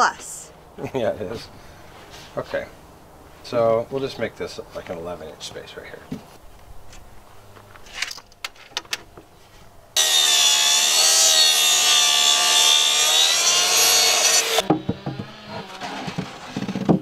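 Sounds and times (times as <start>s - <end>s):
circular saw cutting plywood: 10.0s - 17.0s.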